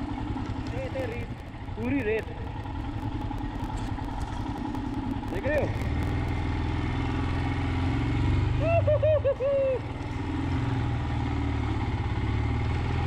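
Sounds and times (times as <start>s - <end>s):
motorcycle engine thumping: 0.0s - 6.7s.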